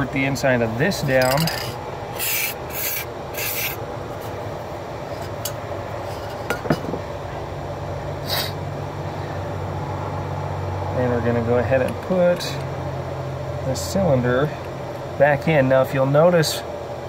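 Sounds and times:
low steady hum: 0:00.0 - 0:17.0
aerosol spray hissing: 0:02.2 - 0:03.8.

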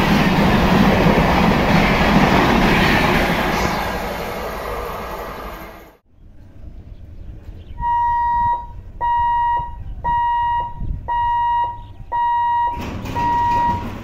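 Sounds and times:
high-pitched warning hooter beeping: 0:07.8 - 0:14.0.

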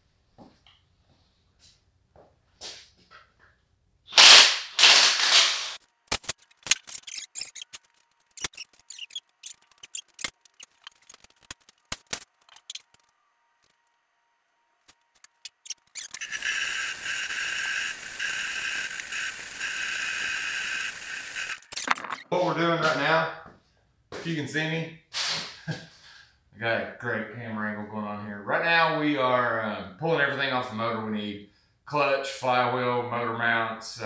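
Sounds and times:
impact wrench running: 0:04.2 - 0:07.8, 0:15.3 - 0:22.1
steady hiss with whine: 0:16.0 - 0:21.8.

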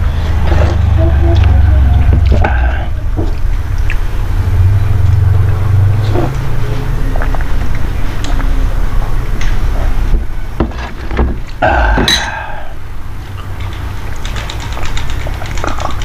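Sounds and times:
steady low hum: 0:00.0 - 0:16.0
chewing and mouth noises: 0:00.1 - 0:10.0, 0:13.3 - 0:16.0.

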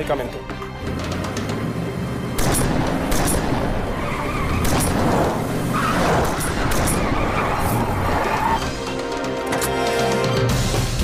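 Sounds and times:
engines running hard: 0:00.5 - 0:09.6
tyres squealing: 0:03.7 - 0:09.1.

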